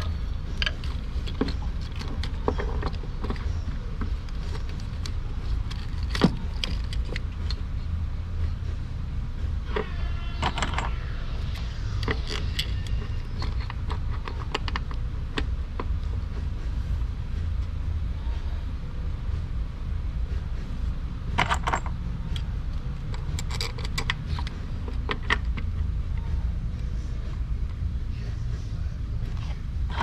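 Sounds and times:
metal parts and tools clicking: 0.0 - 7.7, 9.8 - 15.6, 21.4 - 25.8
steady low hum: 0.0 - 30.0.

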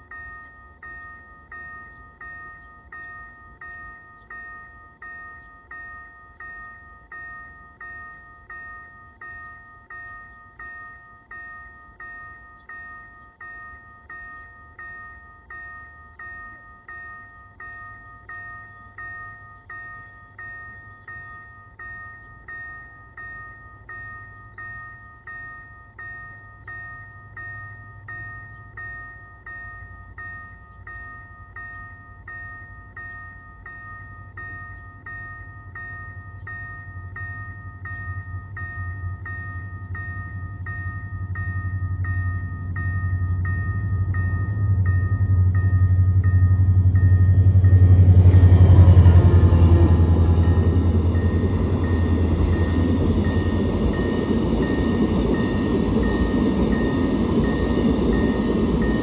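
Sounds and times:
level-crossing warning bell ringing: 0.0 - 59.0
low rumble: 37.0 - 59.0.

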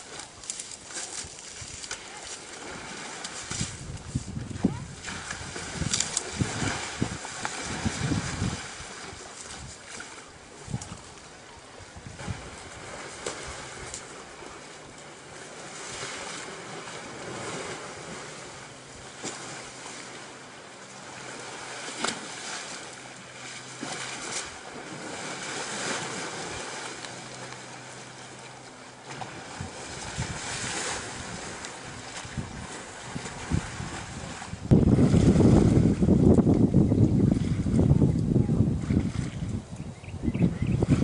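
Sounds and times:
sharp water splashes: 0.0 - 11.0, 15.2 - 35.9
wind rumble on microphone: 0.0 - 15.1, 29.0 - 41.0
water sloshing: 0.0 - 39.8.

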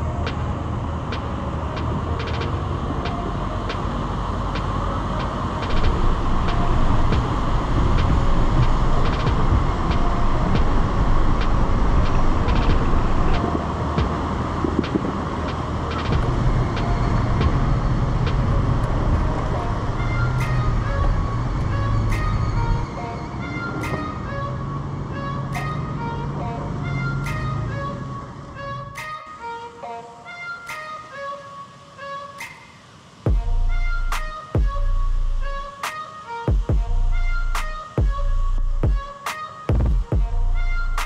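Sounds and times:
vehicle engine rumble: 0.0 - 41.0.

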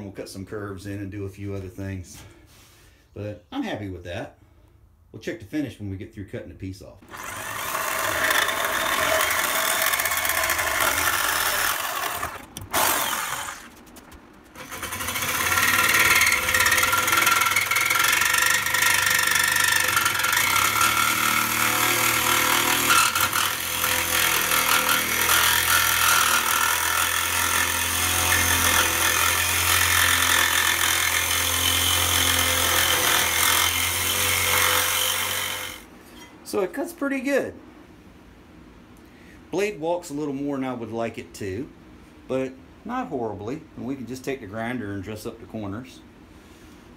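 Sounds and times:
jigsaw cutting metal: 7.1 - 35.9.

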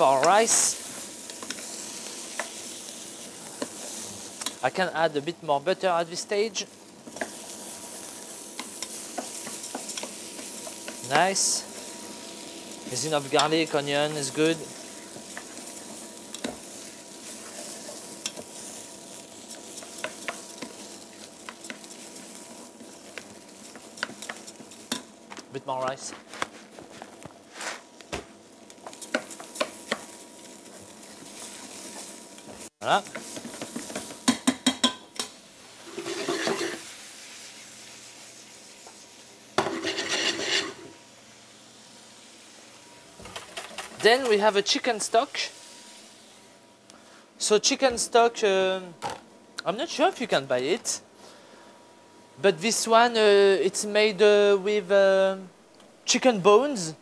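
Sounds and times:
rice sizzling in a pot: 0.0 - 57.0
wooden spoon stirring rice in pot: 7.0 - 25.0
pan scraping: 35.8 - 36.8, 39.7 - 40.9.

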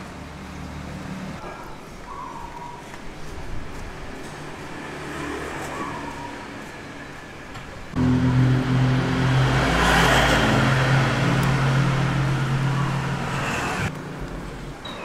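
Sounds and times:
road noise: 0.0 - 15.0
vehicle engine humming: 3.2 - 14.8.

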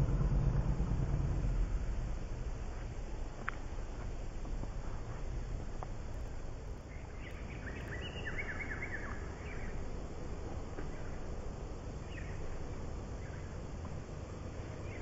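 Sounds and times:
steady low rumble: 0.0 - 15.0
birds chirping: 6.8 - 9.8, 12.0 - 13.7, 14.6 - 15.0.

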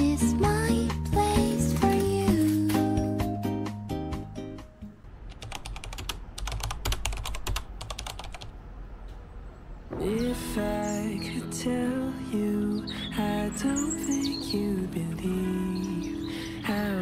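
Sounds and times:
music: 0.0 - 5.1, 9.9 - 17.0.

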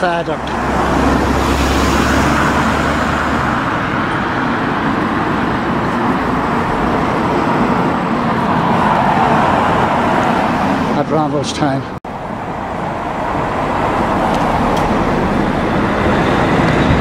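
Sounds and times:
road traffic noise: 0.0 - 17.0
vehicle low rumble: 12.1 - 17.0.

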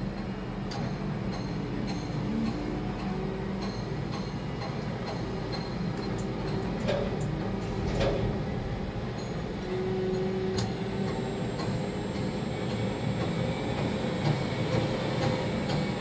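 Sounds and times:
crane mechanical hum: 0.0 - 16.0
thin high whine: 5.7 - 12.6.

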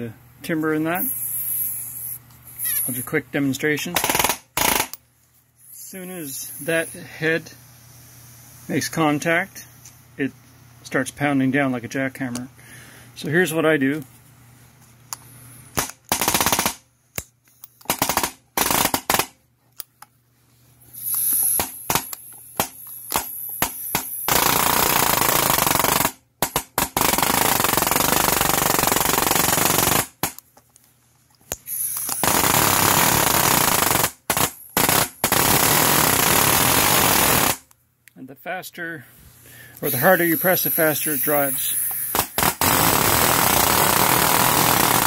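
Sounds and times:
air palm nailer hammering: 21.1 - 30.4, 41.9 - 45.0.

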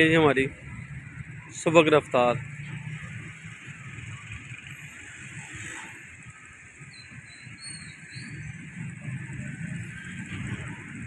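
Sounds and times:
bird chirps: 6.8 - 8.8.

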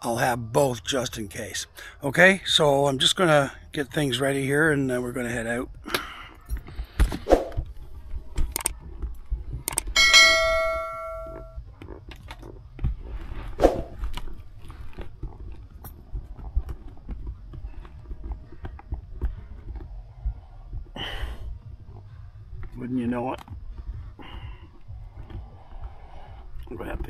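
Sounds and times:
bell-like ding: 10.0 - 11.6.

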